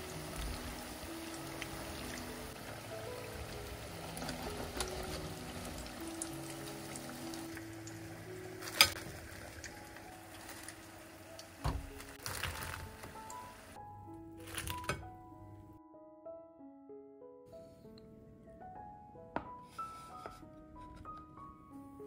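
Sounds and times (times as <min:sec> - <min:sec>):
food deep-frying in oil: 0:00.0 - 0:13.8
soft background music: 0:00.0 - 0:22.0.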